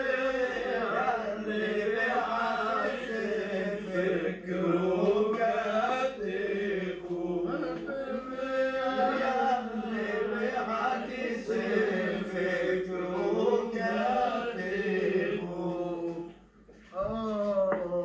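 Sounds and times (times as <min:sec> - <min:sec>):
men singing a chanted refrain: 0:00.0 - 0:16.5.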